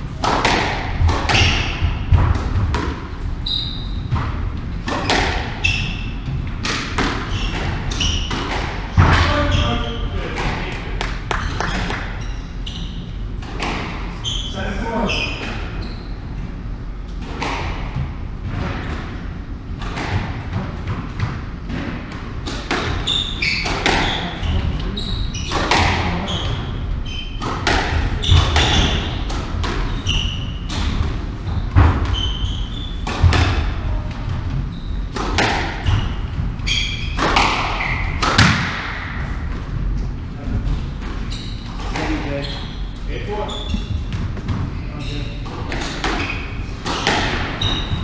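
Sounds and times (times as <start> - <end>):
squash ball hits: 0.0 - 3.3, 4.0 - 5.8, 6.5 - 12.1, 17.2 - 24.4, 25.4 - 26.6, 27.3 - 32.4, 33.0 - 39.6, 45.4 - 48.0
shoes squeaking on wooden floor: 31.5 - 38.2, 40.4 - 48.0.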